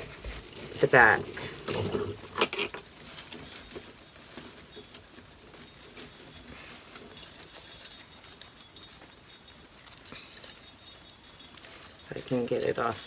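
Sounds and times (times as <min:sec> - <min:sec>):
rustling of artificial branches: 0:00.0 - 0:13.0.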